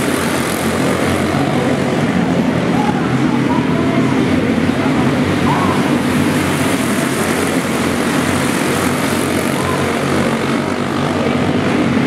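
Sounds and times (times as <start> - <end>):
go-kart engines buzzing: 0.0 - 12.0.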